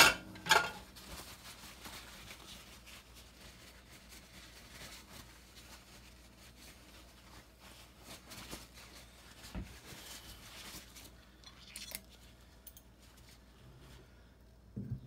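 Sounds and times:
paper towel rustling: 0:00.2 - 0:11.4
knock: 0:14.8 - 0:15.0.

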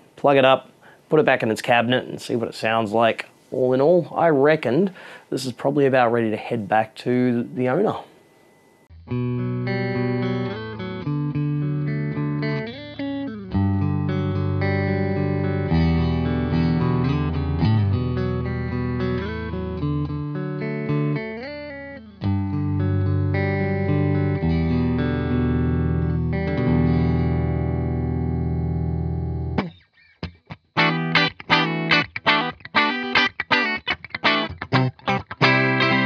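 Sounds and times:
electric guitar chords and notes: 0:08.4 - 0:36.0.

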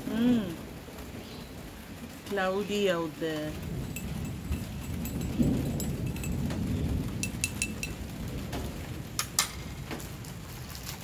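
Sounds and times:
light rain: 0:00.0 - 0:11.0
thunder rumbling: 0:03.4 - 0:10.6
high ringing clinks: 0:03.9 - 0:06.6, 0:07.2 - 0:08.0.

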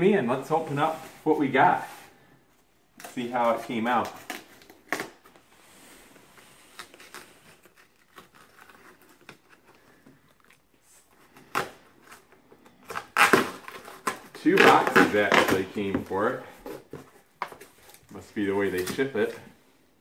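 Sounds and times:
cardboard scraping and tearing: 0:06.2 - 0:09.8, 0:11.4 - 0:17.1
blade slitting packing tape: 0:12.9 - 0:15.6.

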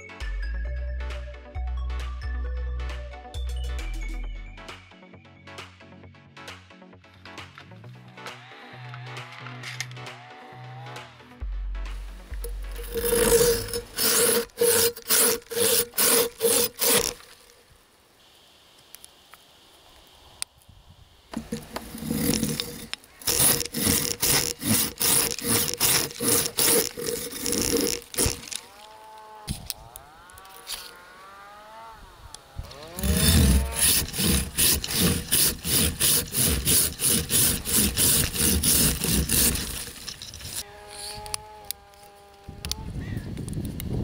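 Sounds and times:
pruning saw cutting branch: 0:12.3 - 0:17.5, 0:21.4 - 0:42.8.

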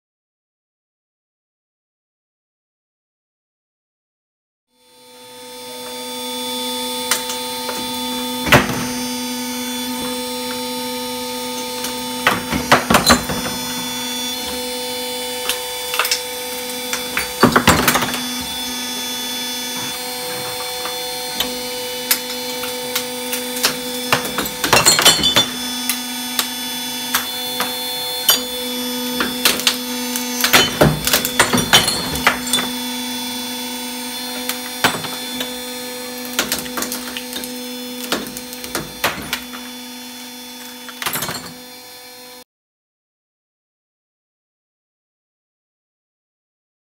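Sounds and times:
crushing machine hum: 0:05.5 - 0:42.0
knocks and rattles of pieces: 0:11.6 - 0:14.7, 0:15.4 - 0:19.0, 0:19.6 - 0:26.5, 0:29.2 - 0:32.8, 0:34.3 - 0:39.8
loud cracking and crunching: 0:11.9 - 0:33.5, 0:34.2 - 0:39.8.

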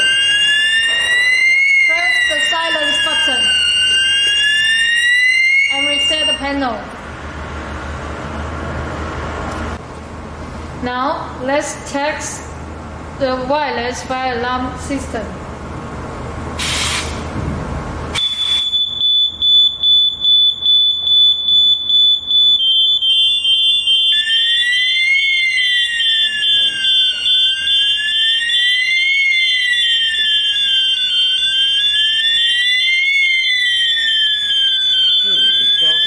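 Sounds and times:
high-pitched alarm tone: 0:00.0 - 0:06.8, 0:18.2 - 0:36.0
rising and falling siren: 0:00.0 - 0:09.8, 0:18.2 - 0:36.0.

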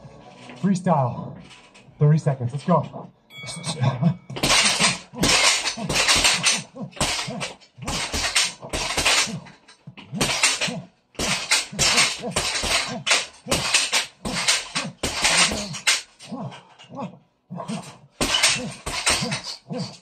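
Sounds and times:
person grunting: 0:03.6 - 0:20.0
gloved punches on heavy bag: 0:04.3 - 0:16.2, 0:18.2 - 0:20.0.

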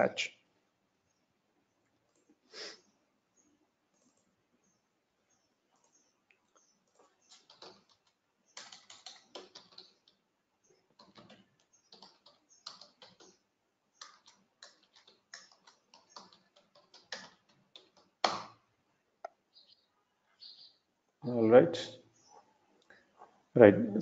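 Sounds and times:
computer keyboard typing: 0:06.9 - 0:10.2, 0:10.9 - 0:13.4, 0:14.0 - 0:18.5.

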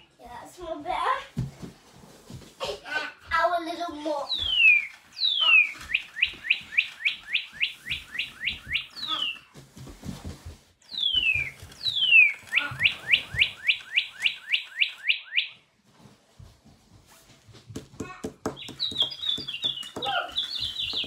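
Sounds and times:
toy bird whistles and chirps: 0:04.3 - 0:09.5, 0:10.9 - 0:15.6.

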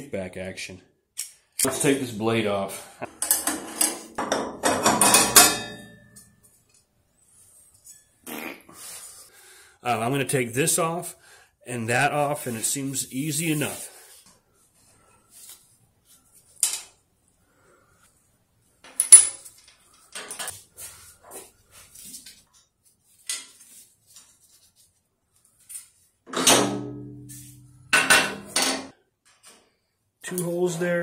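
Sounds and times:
metal parts clanking down: 0:03.1 - 0:06.4, 0:18.8 - 0:20.5
steel parts clinking on metal: 0:03.2 - 0:06.4, 0:18.8 - 0:20.6.

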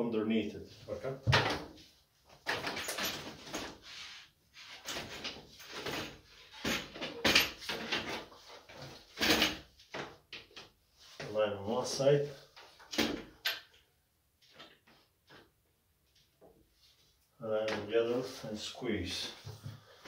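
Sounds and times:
wooden cot parts knocking and scraping: 0:01.2 - 0:03.8, 0:04.7 - 0:11.3.

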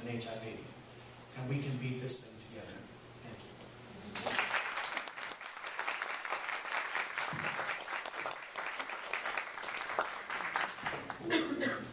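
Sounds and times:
audience applauding: 0:04.1 - 0:11.4.

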